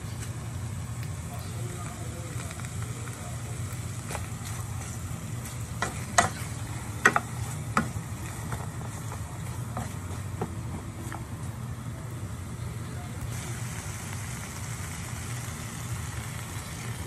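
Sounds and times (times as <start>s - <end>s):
steady low hum: 0.0s - 17.0s
meat sizzling in a frying pan: 0.4s - 9.2s, 13.3s - 17.0s
spatula knocking against pan: 7.0s - 8.0s.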